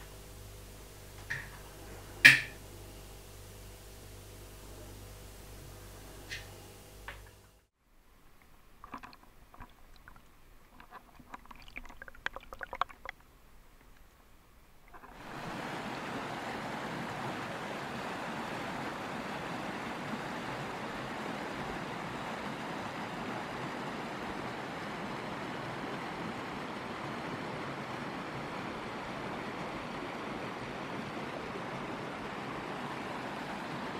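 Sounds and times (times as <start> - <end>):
river water rushing over rocks: 15.0 - 33.9.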